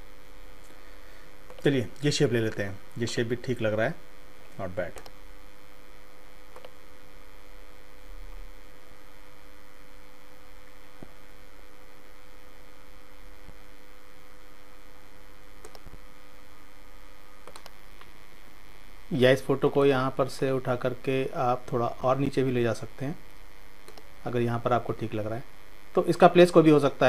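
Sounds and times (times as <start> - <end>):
electrical mains hum and hiss: 0.0 - 27.0
faint clicks: 4.9 - 5.2, 6.5 - 6.8, 15.6 - 16.0, 17.4 - 18.2, 23.8 - 24.1.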